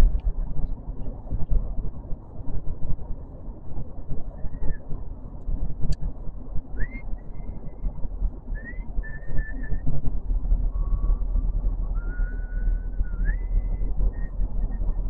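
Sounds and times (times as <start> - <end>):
car road and engine rumble: 0.0 - 15.0
thin high whistle: 8.5 - 9.8, 11.9 - 14.7.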